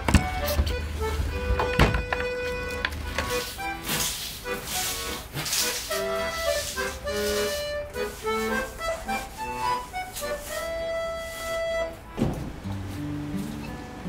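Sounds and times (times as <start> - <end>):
solo accordion melody: 0.0 - 14.0
short knock: 12.2 - 12.6.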